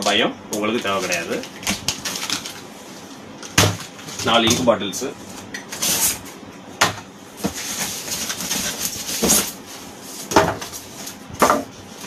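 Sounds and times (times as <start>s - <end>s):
cardboard knocks and scrapes: 6.8s - 11.7s.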